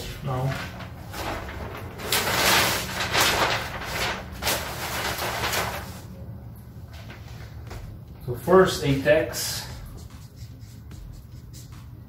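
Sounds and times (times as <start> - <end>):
paper sheets rustling: 0.0 - 6.1, 6.9 - 8.0.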